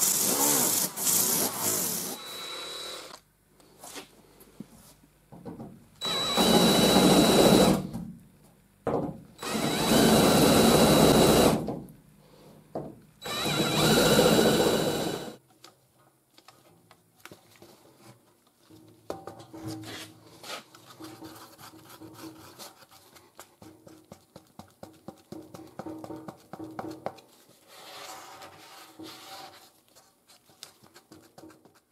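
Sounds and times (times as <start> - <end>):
cordless drill whining: 0.0 - 3.2, 6.0 - 7.8, 9.4 - 11.6, 13.2 - 15.4.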